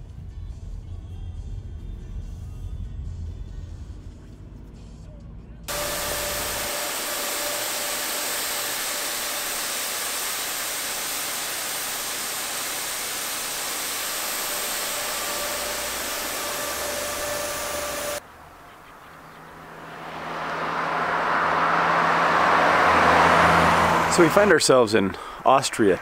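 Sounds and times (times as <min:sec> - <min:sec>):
snow cannon hiss of air and spray: 0:05.7 - 0:18.2
faint steady whine: 0:05.7 - 0:19.6.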